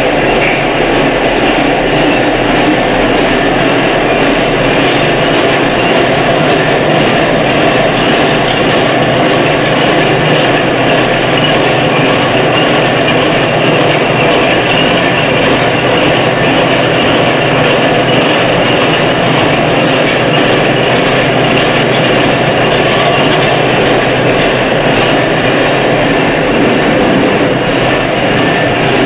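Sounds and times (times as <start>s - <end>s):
can seaming machine running: 14.0s - 29.0s
low hum: 22.9s - 29.0s.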